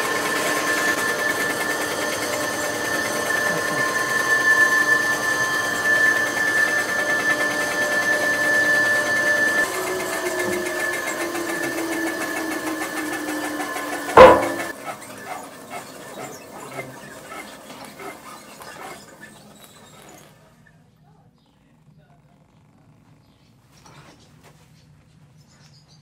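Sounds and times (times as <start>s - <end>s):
machine roller whining: 0.0s - 20.5s
loud machine clunk: 14.0s - 14.8s.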